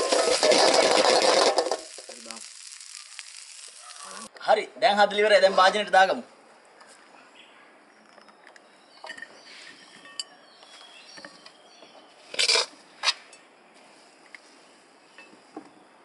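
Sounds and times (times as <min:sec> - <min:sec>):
metal ladle scraping wok: 0:00.0 - 0:03.7
patter of food falling: 0:00.0 - 0:04.3.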